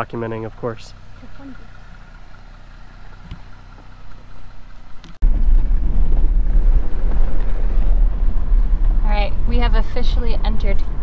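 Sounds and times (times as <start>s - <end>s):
low vehicle hum: 0.0s - 11.0s
rough low driving rumble: 0.0s - 11.0s
wind buffeting microphone: 5.2s - 11.0s.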